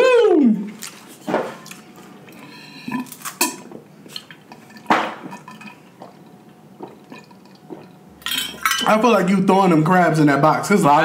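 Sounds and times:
man shouting woo: 0:00.0 - 0:00.7.

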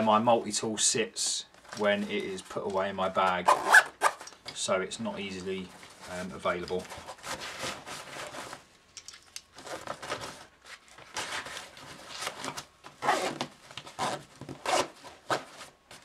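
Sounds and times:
backpack fabric rustling: 0:11.2 - 0:15.8.

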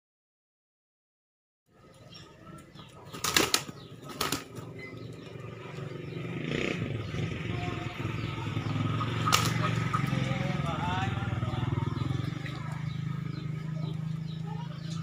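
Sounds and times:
rooster wings flapping: 0:03.1 - 0:04.7, 0:09.2 - 0:09.8.

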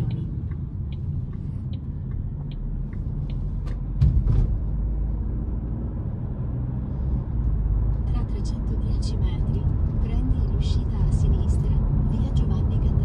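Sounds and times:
engine and tyre rumble: 0:00.0 - 0:13.0
thump: 0:04.0 - 0:04.7.

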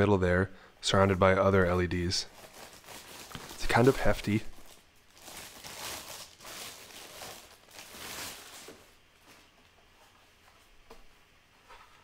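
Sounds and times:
plastic bag rustling: 0:02.1 - 0:10.1.

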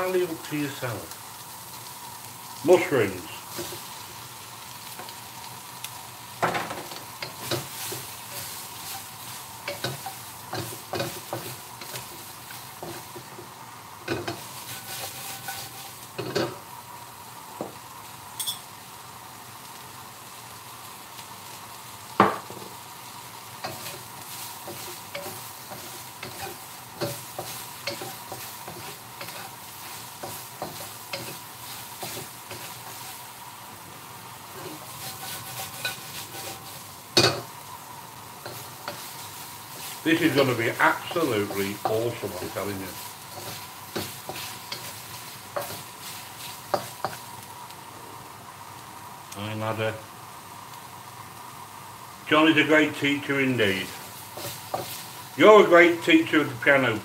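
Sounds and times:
vegetables sizzling in a wok: 0:00.0 - 0:57.0
spatula knocking and scraping pan: 0:06.4 - 0:16.6, 0:23.6 - 0:33.2, 0:34.6 - 0:37.5, 0:43.3 - 0:47.2, 0:54.3 - 0:55.0.

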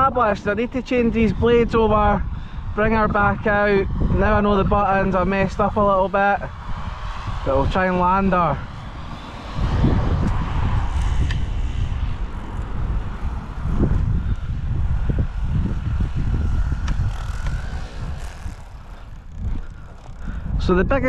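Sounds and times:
heavy uneven low rumble: 0:00.0 - 0:21.0
rc helicopter rotors: 0:00.0 - 0:21.0.

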